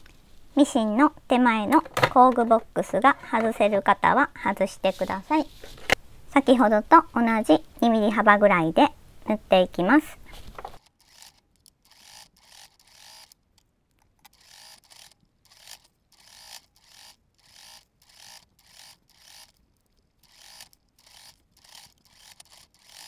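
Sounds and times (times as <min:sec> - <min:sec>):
sewing machine stitching: 0:10.8 - 0:13.4, 0:14.3 - 0:19.6, 0:20.2 - 0:23.0.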